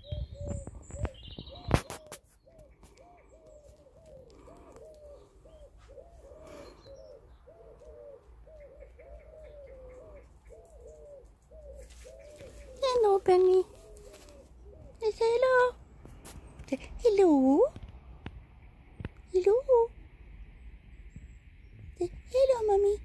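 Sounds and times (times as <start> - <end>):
pigeon cooing: 0.0 - 15.8
small birds chirping: 0.0 - 19.9.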